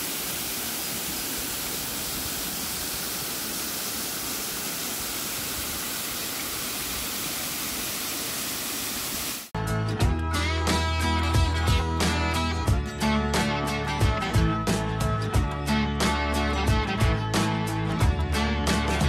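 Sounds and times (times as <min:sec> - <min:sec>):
waterfall splashing into pool: 0:00.0 - 0:09.5.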